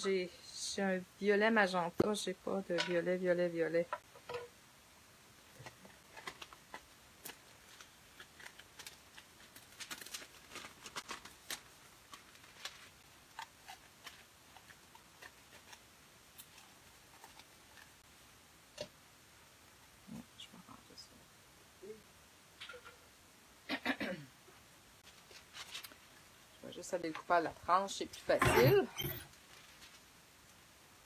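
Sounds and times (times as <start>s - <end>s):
foil crinkling and clicking: 5.6s - 18.0s.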